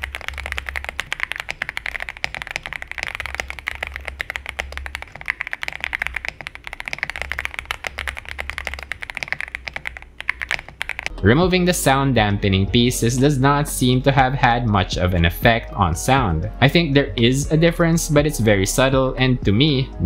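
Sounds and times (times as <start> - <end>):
mechanical keyboard typing: 0.0 - 11.1.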